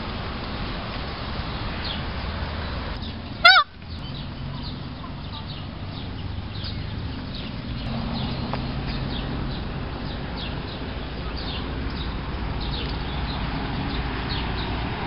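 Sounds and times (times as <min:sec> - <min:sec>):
small birds chirping: 0:01.0 - 0:15.0
peacock calling: 0:03.0 - 0:13.4.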